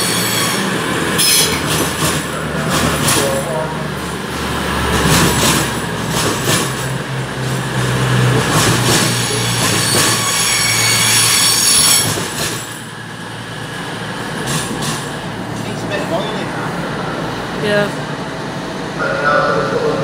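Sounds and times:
high wheel squeal: 0.0s - 3.8s, 9.0s - 12.9s
low train drone: 0.0s - 20.0s
train wheels knocking over rail joints: 1.0s - 3.5s, 4.9s - 12.9s, 14.2s - 15.3s.

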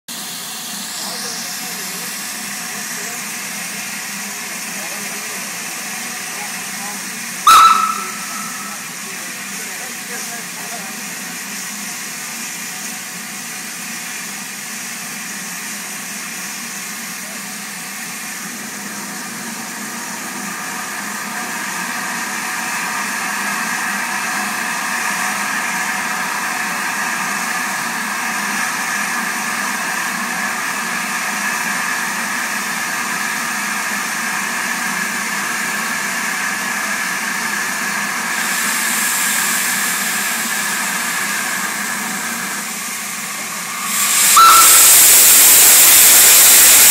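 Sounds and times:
steam locomotive hissing: 0.1s - 46.9s
sharp high steam hiss: 7.5s - 17.0s, 37.9s - 46.9s.

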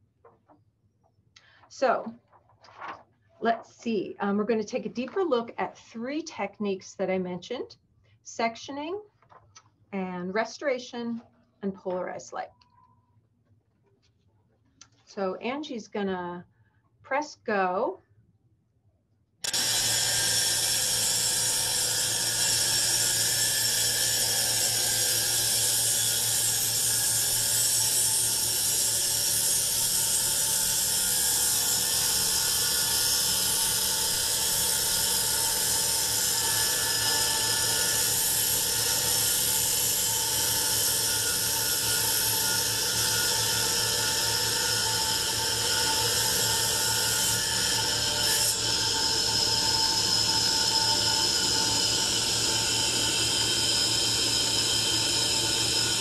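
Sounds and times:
wet tile saw whining: 19.4s - 56.0s.

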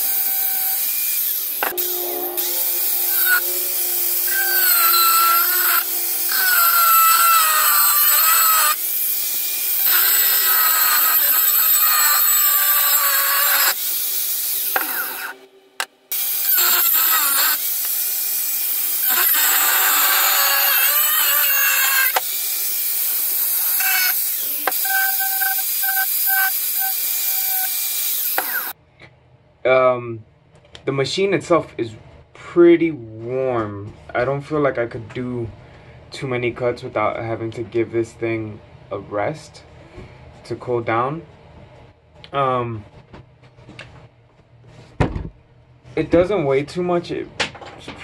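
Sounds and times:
angle grinder cutting steel: 0.0s - 28.8s.

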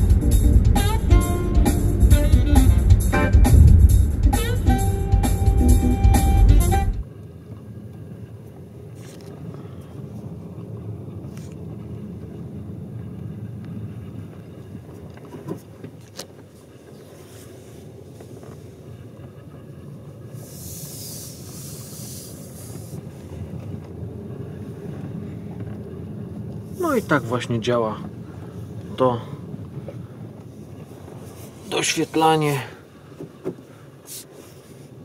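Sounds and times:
car road and engine hum: 0.0s - 35.0s
brief hiss: 20.4s - 23.0s, 34.0s - 34.9s.

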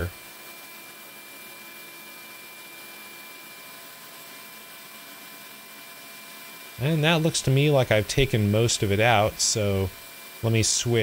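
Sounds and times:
surface grinder idling: 6.7s - 11.0s.

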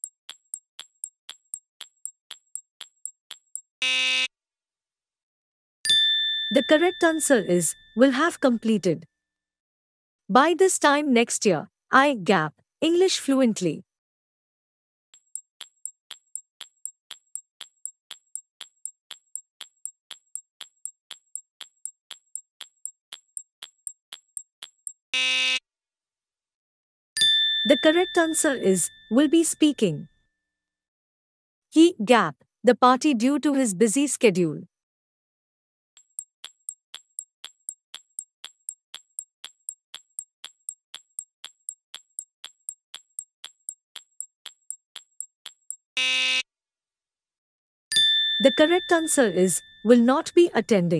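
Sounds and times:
clock ticking: 15.2s - 25.0s, 36.0s - 45.8s.

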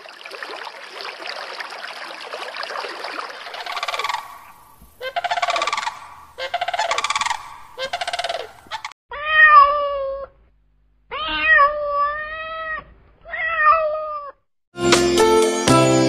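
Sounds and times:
bird pulsing calls: 3.5s - 8.9s
kitten meowing: 9.1s - 10.4s, 11.1s - 14.4s.

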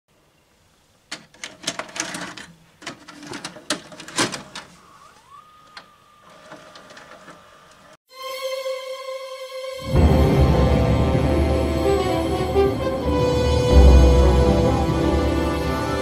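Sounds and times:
cassette loading clicks and clunks: 1.1s - 4.9s
held musical chord: 8.1s - 16.0s.

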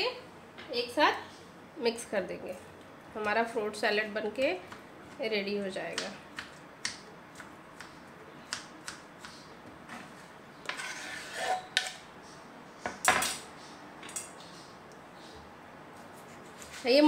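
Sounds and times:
pieces scraped into bowl: 10.7s - 11.8s.

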